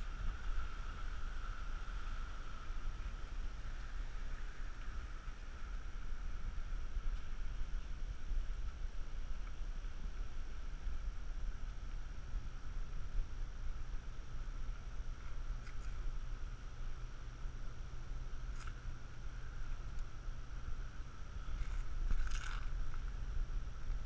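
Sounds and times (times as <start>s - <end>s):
faint steady hiss: 0.0s - 24.0s.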